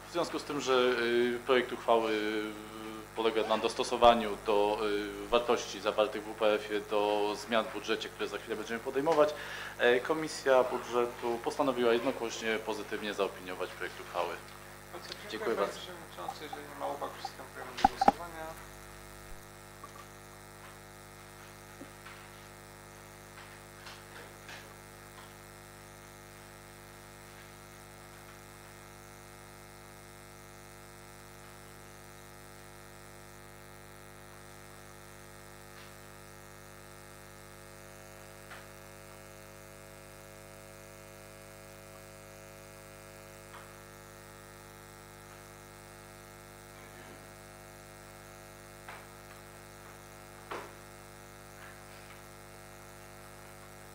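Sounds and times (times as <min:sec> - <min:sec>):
electrical mains hum: 0:00.0 - 0:24.3, 0:35.8 - 0:53.9.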